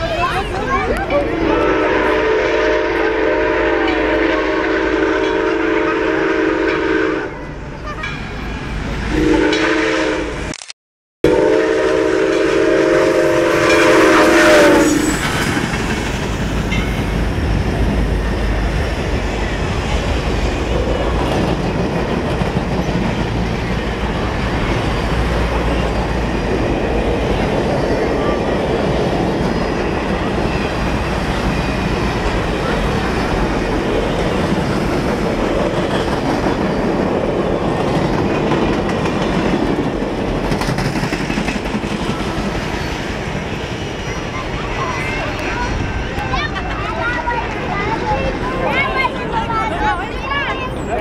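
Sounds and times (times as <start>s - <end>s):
rumble of passing train cars: 0.0s - 10.5s, 11.2s - 51.0s
steam locomotive whistle blasts: 1.3s - 7.5s, 9.1s - 10.5s, 11.3s - 15.2s
wheels clacking over rail joints: 15.1s - 48.4s.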